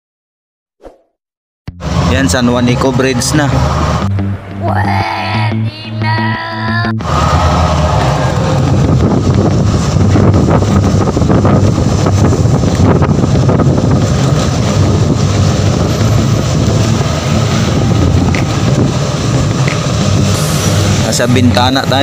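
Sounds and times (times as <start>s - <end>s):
bus engine and tyres rumbling: 1.7s - 22.0s
wind buffeting microphone: 6.8s - 22.0s.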